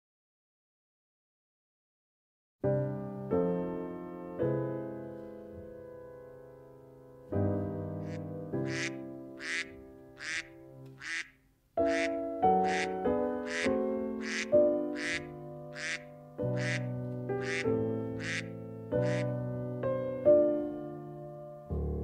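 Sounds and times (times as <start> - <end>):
piano chords: 2.6 - 10.9, 11.8 - 22.0
duck quacking: 8.0 - 19.3.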